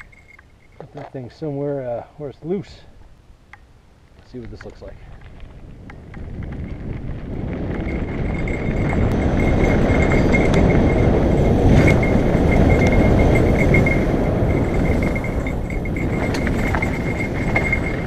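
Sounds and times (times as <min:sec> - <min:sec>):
wind rushing on camera: 0:00.0 - 0:01.6, 0:02.5 - 0:18.0
bike bell jingling: 0:00.0 - 0:01.8, 0:05.8 - 0:18.0
bike tyres on dirt: 0:00.0 - 0:18.0.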